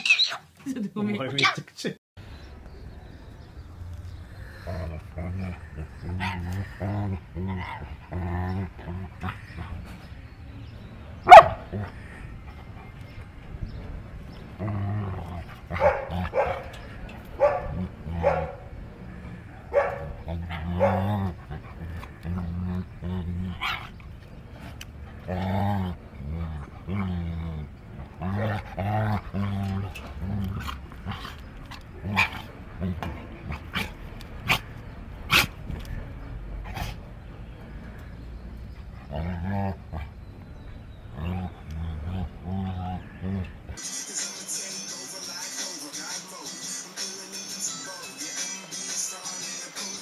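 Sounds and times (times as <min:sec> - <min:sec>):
dog play-growling: 0:04.1 - 0:10.2, 0:11.3 - 0:36.0, 0:38.4 - 0:43.8
dog barks and yips: 0:11.3 - 0:11.6, 0:15.7 - 0:16.8, 0:17.4 - 0:18.6, 0:19.7 - 0:21.1.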